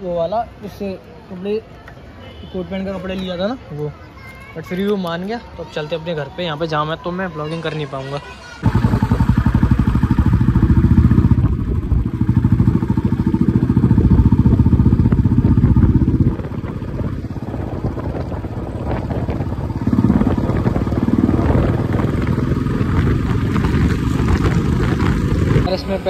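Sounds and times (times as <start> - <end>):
motorcycle engine running: 8.6 - 26.0.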